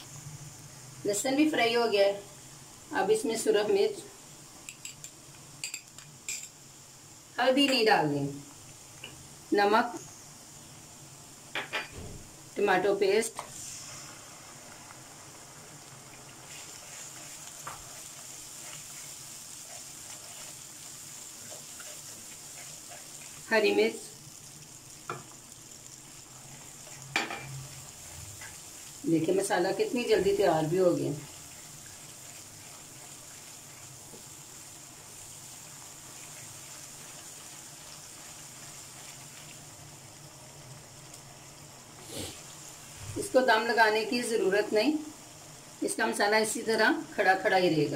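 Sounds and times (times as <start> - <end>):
food sizzling in hot oil: 0.0 - 47.9
wooden spatula stirring: 16.3 - 24.0, 27.6 - 39.6.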